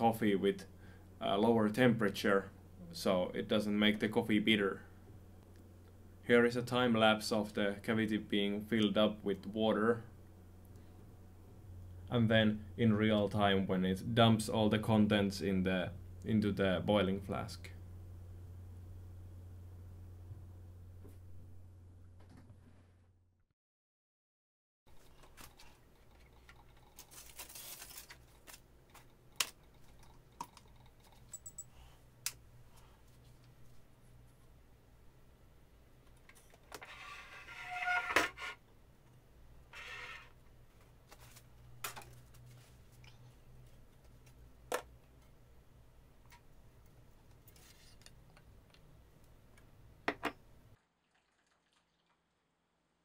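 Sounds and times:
low steady hum: 0:00.0 - 0:22.9
aluminium foil crinkling: 0:26.6 - 0:29.6.

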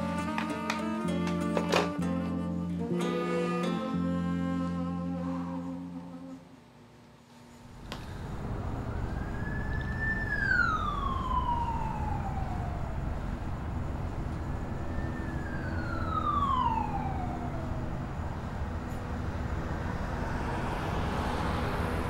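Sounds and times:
siren wailing: 0:00.0 - 0:06.4, 0:08.4 - 0:22.0
steady low rumble: 0:07.6 - 0:22.0.

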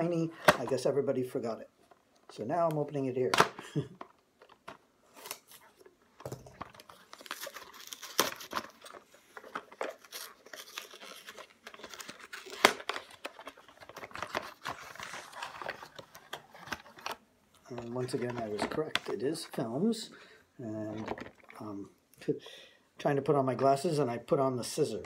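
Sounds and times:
paper tearing and crinkling: 0:05.1 - 0:05.9, 0:06.8 - 0:17.2.

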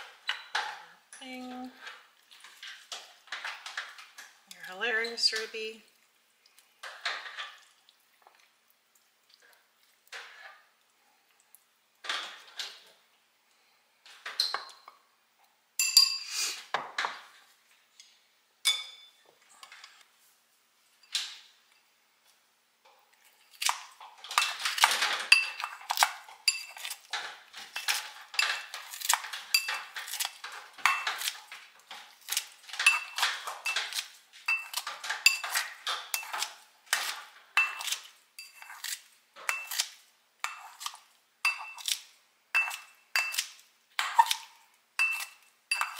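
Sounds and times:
kitchen scissors snipping: 0:23.5 - 0:45.9
chopsticks scraping ceramic bowl: 0:23.6 - 0:45.9.

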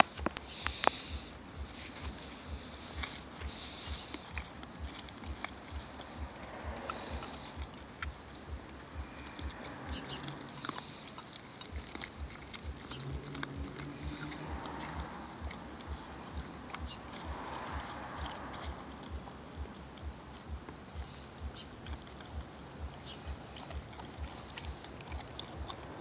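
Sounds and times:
puppy chewing and licking: 0:00.0 - 0:26.0
teeth clicking: 0:00.0 - 0:26.0.

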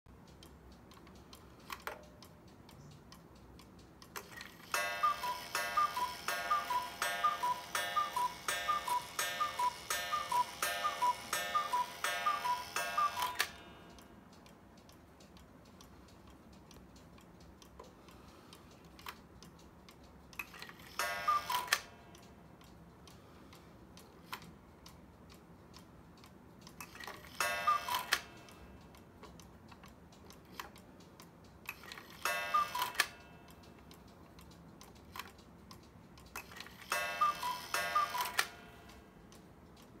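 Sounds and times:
clock ticking: 0:00.1 - 0:40.0
cuckoo clock calls: 0:04.2 - 0:14.0, 0:20.4 - 0:22.4, 0:26.8 - 0:28.8, 0:31.7 - 0:33.7, 0:36.3 - 0:39.1.

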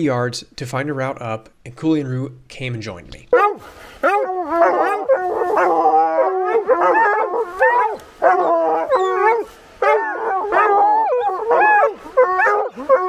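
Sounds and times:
hounds baying: 0:03.3 - 0:13.0.

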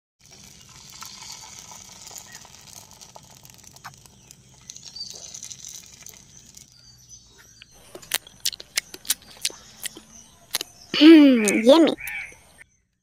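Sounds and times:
batter sizzling on a griddle: 0:00.2 - 0:06.8
small crackles: 0:00.2 - 0:10.8.

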